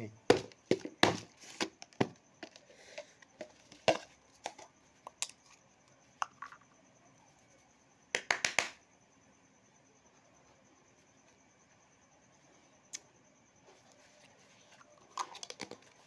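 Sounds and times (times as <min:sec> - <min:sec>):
plastic containers clicking and knocking: 0:00.3 - 0:05.3, 0:15.1 - 0:16.0
sharp hand slaps: 0:08.2 - 0:08.8.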